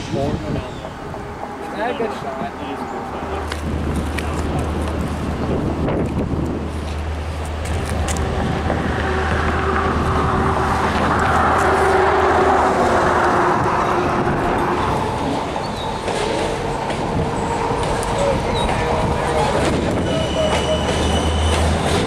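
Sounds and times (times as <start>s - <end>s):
road vehicle passing: 0.6s - 22.0s.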